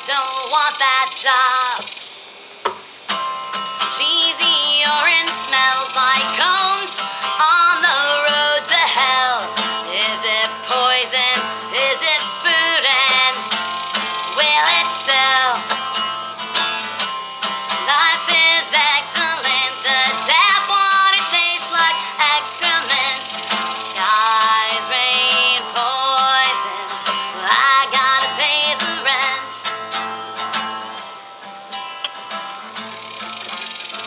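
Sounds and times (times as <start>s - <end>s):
woman singing: 0.0s - 1.9s, 3.8s - 15.8s, 17.7s - 29.8s
strummed acoustic guitar: 0.0s - 34.0s.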